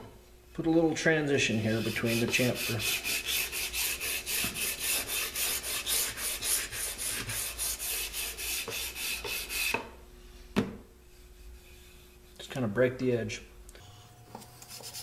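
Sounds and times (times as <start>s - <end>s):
sandpaper rubbing on wood: 1.5s - 9.7s, 14.6s - 15.0s.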